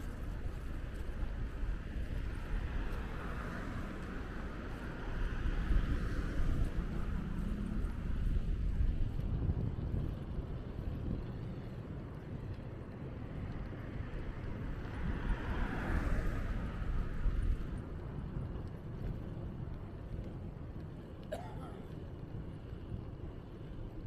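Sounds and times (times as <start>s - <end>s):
vehicle passing: 0.0s - 11.9s, 13.6s - 20.9s
wind rumbling on microphone: 0.0s - 24.0s.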